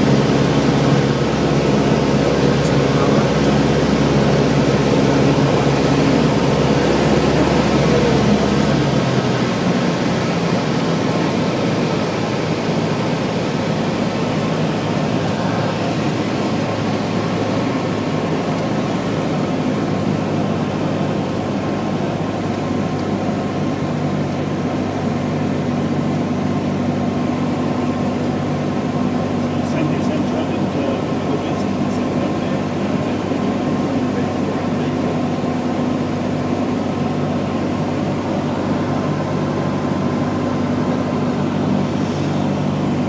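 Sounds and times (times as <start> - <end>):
light aircraft cabin drone: 0.0 - 43.0.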